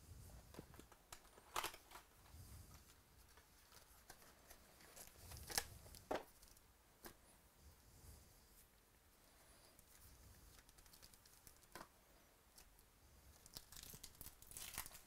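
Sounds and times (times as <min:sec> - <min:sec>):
sharp crinkles and snaps: 0:00.5 - 0:02.1, 0:02.7 - 0:07.2, 0:09.8 - 0:11.9, 0:12.5 - 0:15.0
cardboard and wrapper rustling: 0:13.4 - 0:15.0.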